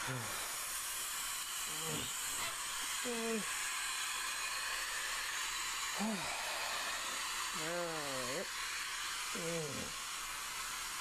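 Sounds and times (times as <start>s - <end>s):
static hiss: 0.0s - 11.0s
person's short vocal sounds: 6.0s - 6.4s, 9.4s - 9.9s.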